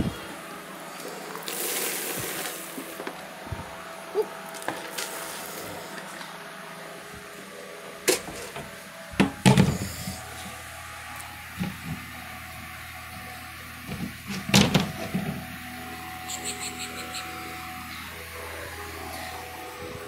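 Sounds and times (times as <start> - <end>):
faint hum: 0.0 - 20.0.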